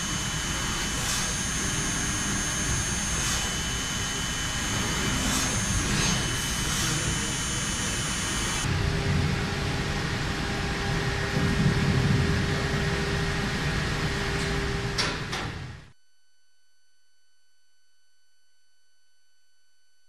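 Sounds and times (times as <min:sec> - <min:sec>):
machine cutting steel: 0:00.0 - 0:08.7
thin high whines: 0:00.0 - 0:08.7.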